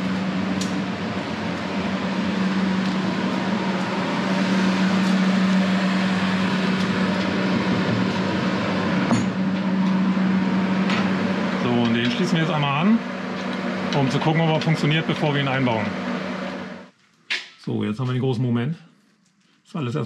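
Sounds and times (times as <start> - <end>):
machine humming with fan noise: 0.0 - 16.9.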